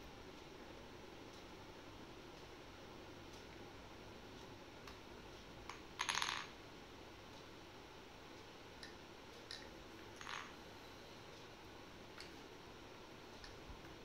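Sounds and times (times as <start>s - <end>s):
toy rolling pin clattering: 6.0s - 6.5s, 10.2s - 10.6s.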